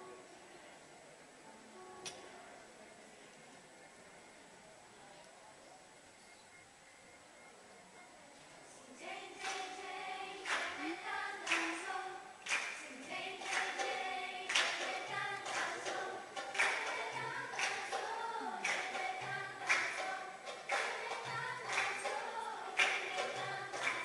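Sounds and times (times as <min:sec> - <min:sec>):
girls choir singing: 0:08.9 - 0:24.0
sharp hand clap: 0:09.4 - 0:09.7, 0:10.4 - 0:10.8, 0:11.4 - 0:22.2, 0:22.8 - 0:24.0.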